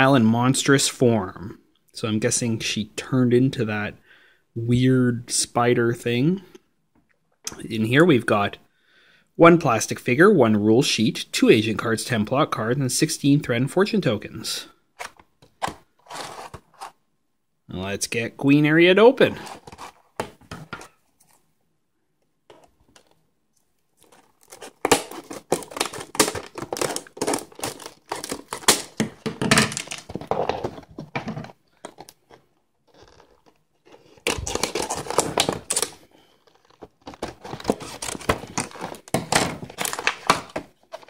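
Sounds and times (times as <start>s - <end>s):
plastic packaging crinkling and tearing: 24.0s - 30.8s, 31.8s - 41.0s.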